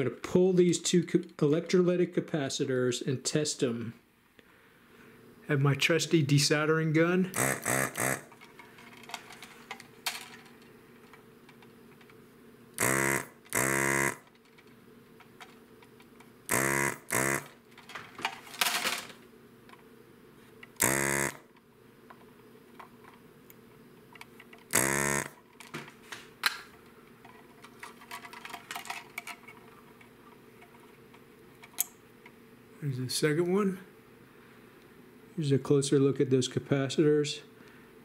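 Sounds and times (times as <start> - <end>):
desoldering pump buzzing: 7.3 - 8.4, 12.7 - 14.4, 16.4 - 17.8, 20.7 - 21.6, 24.7 - 25.5.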